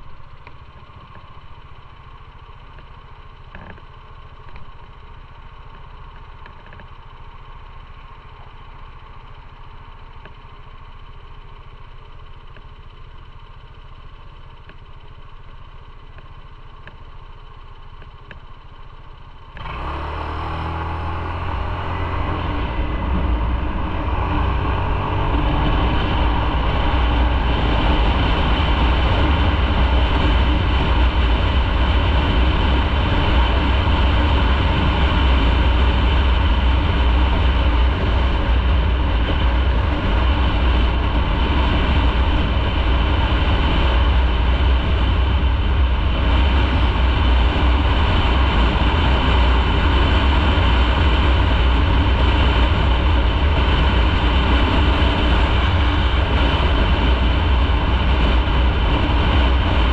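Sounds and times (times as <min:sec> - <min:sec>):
motorcycle engine: 0:00.0 - 0:59.9
wind noise: 0:21.0 - 0:59.9.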